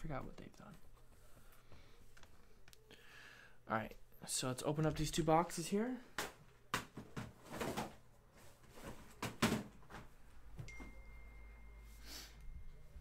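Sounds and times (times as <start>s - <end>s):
boxes knocking and clunking: 6.7s - 8.0s, 8.7s - 10.1s.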